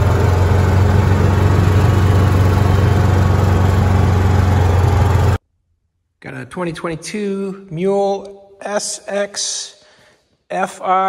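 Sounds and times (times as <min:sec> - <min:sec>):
utility vehicle engine droning: 0:00.0 - 0:05.4.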